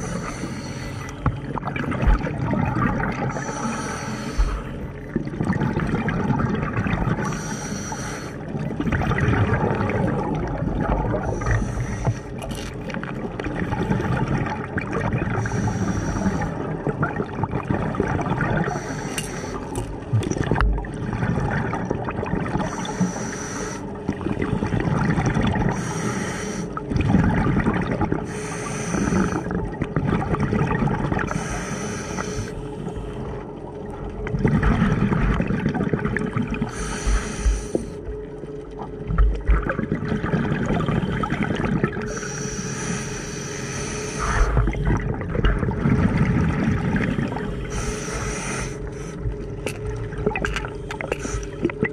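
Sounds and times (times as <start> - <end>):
air hissing through regulator: 0.0 - 1.2, 3.3 - 4.7, 7.2 - 8.4, 11.2 - 12.4, 15.4 - 16.6, 18.6 - 19.8, 22.7 - 23.9, 25.7 - 26.8, 28.2 - 29.5, 31.3 - 33.0, 36.7 - 38.0, 42.1 - 44.8, 47.4 - 49.5, 51.0 - 51.7
gurgling exhaust bubbles: 0.0 - 23.4, 24.0 - 32.6, 33.4 - 43.2, 44.0 - 51.9.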